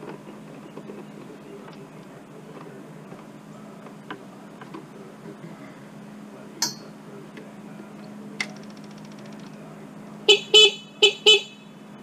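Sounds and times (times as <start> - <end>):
excavator horn beeps: 10.3 - 11.9.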